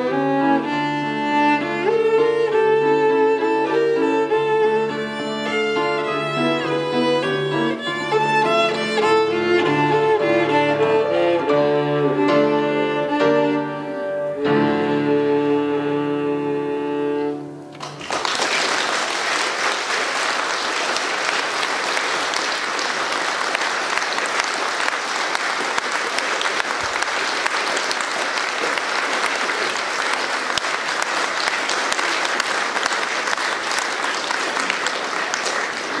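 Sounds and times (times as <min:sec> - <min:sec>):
audience applauding: 0:03.4 - 0:10.6, 0:17.7 - 0:36.0.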